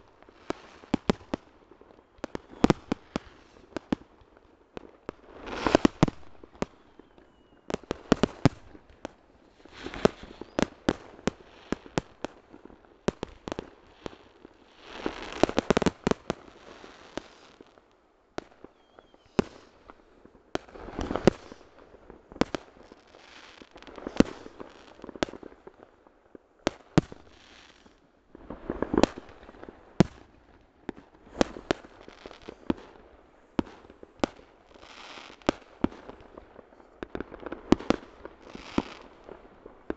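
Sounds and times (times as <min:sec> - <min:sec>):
firecrackers rapid pops: 0:05.1 - 0:06.9, 0:07.7 - 0:12.4, 0:14.9 - 0:16.5, 0:30.9 - 0:32.9.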